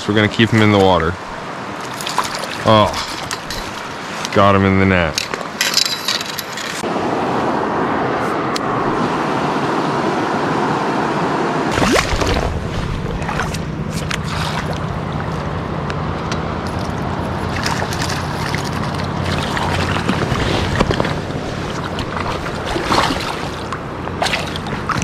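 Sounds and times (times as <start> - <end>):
river rushing: 0.0 - 25.0
camera splashing and knocking: 1.8 - 4.3, 11.7 - 14.9, 16.6 - 25.0.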